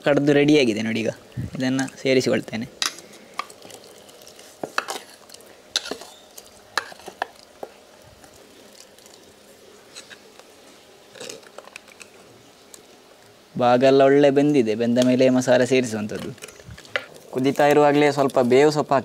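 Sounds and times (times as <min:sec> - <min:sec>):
stirring in clay pot: 0:01.5 - 0:12.2, 0:15.8 - 0:18.8.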